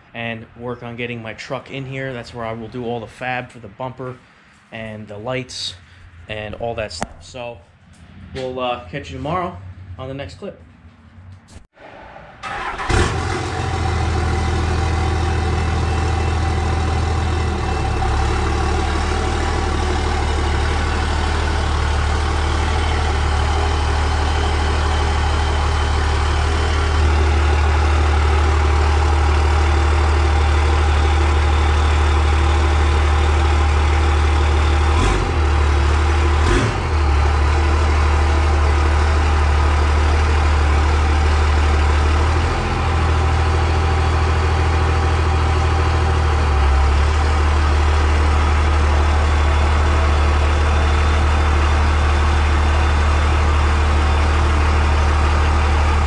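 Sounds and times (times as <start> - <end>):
diesel engine idling: 12.4 - 56.0.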